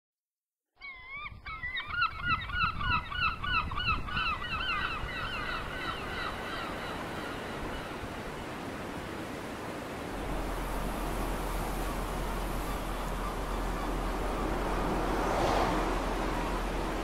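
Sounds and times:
gulls calling: 0:00.8 - 0:17.0
surf washing: 0:04.8 - 0:17.0.

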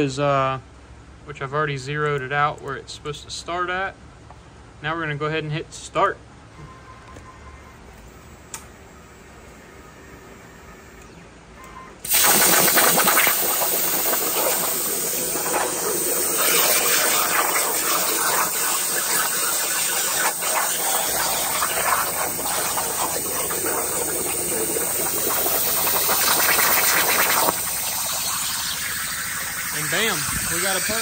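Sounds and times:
plasma torch cutting metal: 0:12.1 - 0:31.0.

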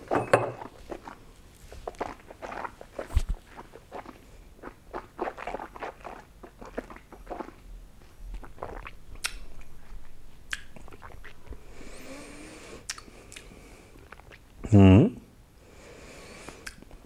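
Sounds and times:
wet mouth smacks and clicks: 0:08.4 - 0:09.7, 0:10.5 - 0:11.4, 0:12.8 - 0:14.5, 0:16.6 - 0:17.0.

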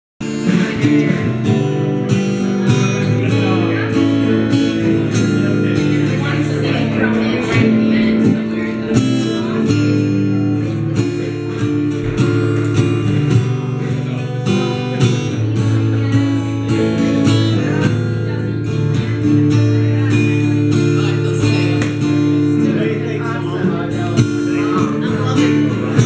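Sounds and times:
steady drum beat: 0:00.2 - 0:18.1
acoustic guitar strumming: 0:00.2 - 0:26.0
electric guitar: 0:00.2 - 0:26.0.

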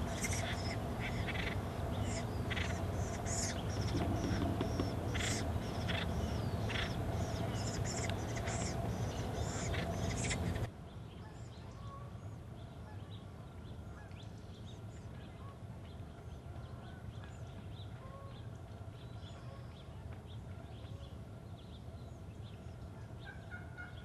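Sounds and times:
steady low rumble: 0:00.0 - 0:10.7
woodpeckers giving raucous calls: 0:00.0 - 0:10.7.

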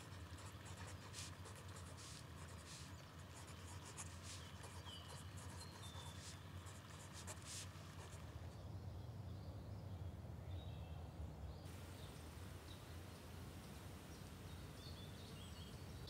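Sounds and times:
pencil scratching on paper: 0:00.0 - 0:08.3
low steady hum: 0:00.0 - 0:16.0.

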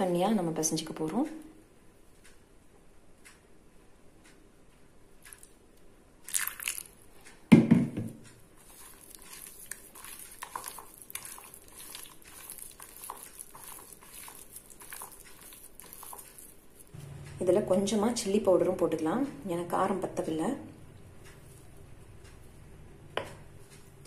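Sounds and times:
water poured into a bowl: 0:06.3 - 0:06.9
hand kneading wet dough: 0:08.6 - 0:16.9.

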